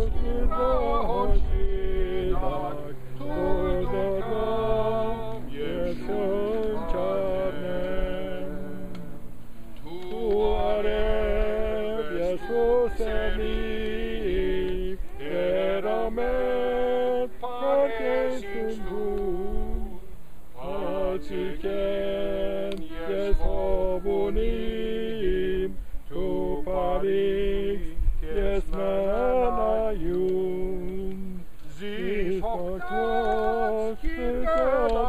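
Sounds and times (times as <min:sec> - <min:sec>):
group singing a hymn unaccompanied: 0:00.0 - 0:35.0.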